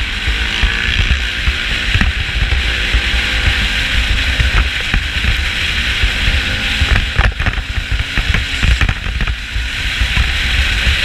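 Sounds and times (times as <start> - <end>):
vehicle engine rumble: 0.0 - 11.0
wind noise: 0.0 - 11.0
camera knocking and rattling: 1.9 - 2.8, 4.3 - 5.5, 6.8 - 9.4.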